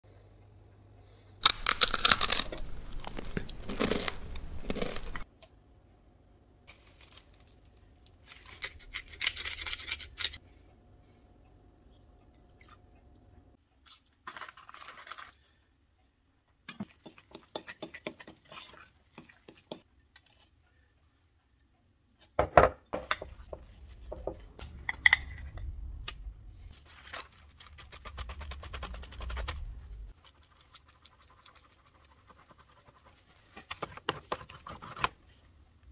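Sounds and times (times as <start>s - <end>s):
crackers crunching: 1.4s - 5.2s
plastic wrap crinkling: 1.4s - 5.2s.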